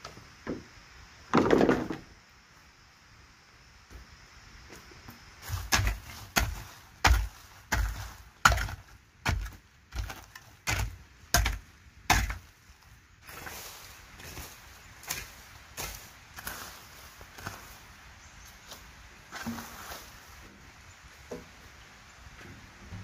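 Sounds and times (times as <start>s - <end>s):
hoe scraping through leaf litter: 5.4s - 11.6s, 12.2s - 20.6s
hoe chopping into earth: 5.4s - 12.5s.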